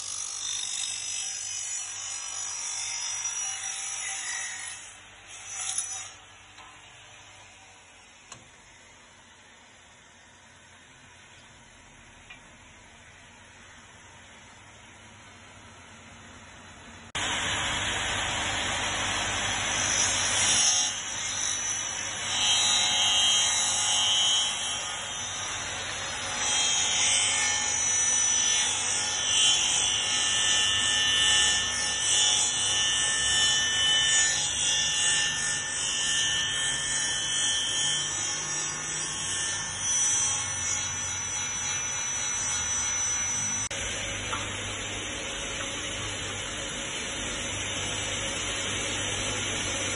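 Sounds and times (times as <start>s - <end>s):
miter saw cutting metal: 0.0s - 8.8s, 17.2s - 44.4s.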